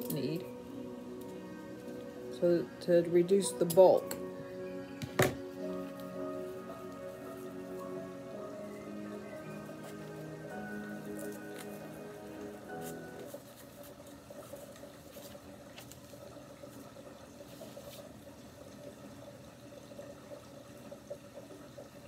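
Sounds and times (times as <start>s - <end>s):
background music: 0.0s - 13.5s.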